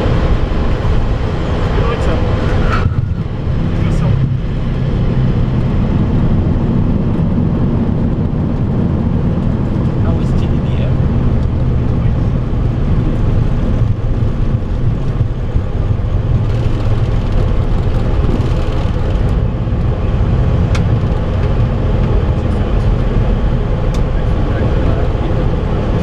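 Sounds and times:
aircraft rumbling on ground: 0:00.0 - 0:26.0.

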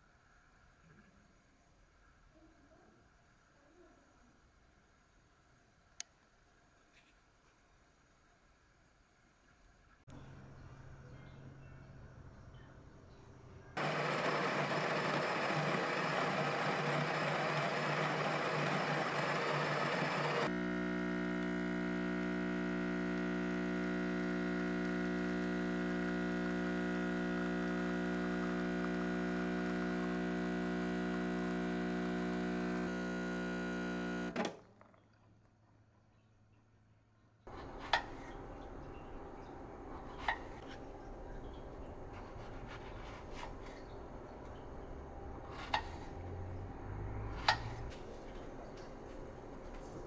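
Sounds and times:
espresso pump buzzing: 0:13.8 - 0:34.4
grinder grinding coffee beans: 0:13.8 - 0:34.4.

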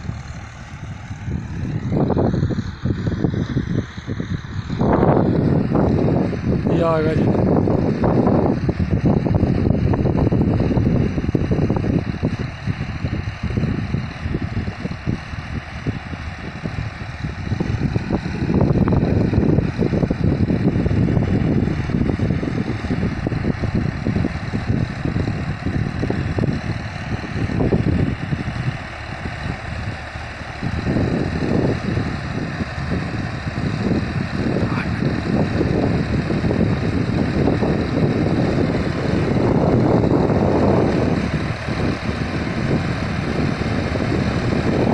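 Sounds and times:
tractor diesel engine running: 0:00.0 - 0:44.9.

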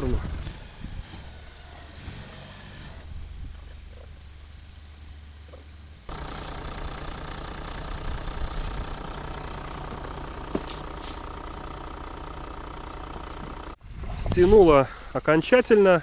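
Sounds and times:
diesel engine idling: 0:03.3 - 0:13.8.

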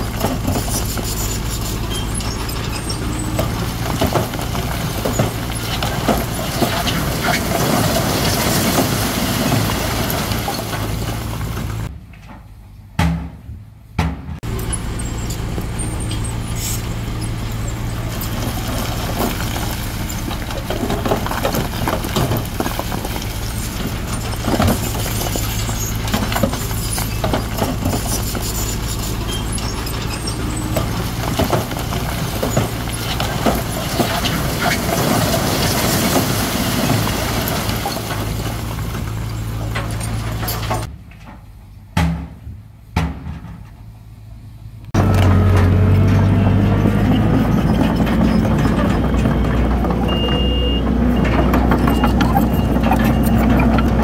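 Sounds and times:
diesel machinery engine drone: 0:00.0 - 0:54.0.

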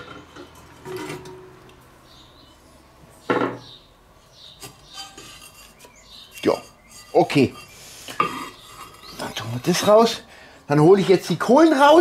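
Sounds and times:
metal grate clinks and scrapes: 0:00.0 - 0:01.5, 0:04.6 - 0:10.1.

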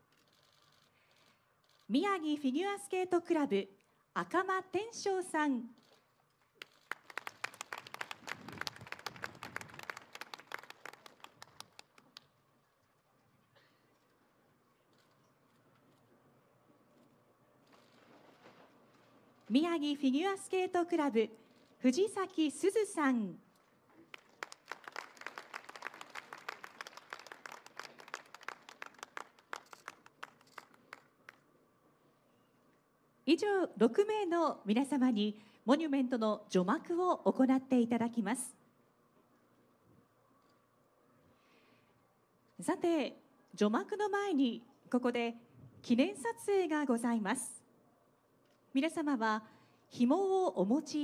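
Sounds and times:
audience applause: 0:06.8 - 0:12.2, 0:24.1 - 0:31.4.

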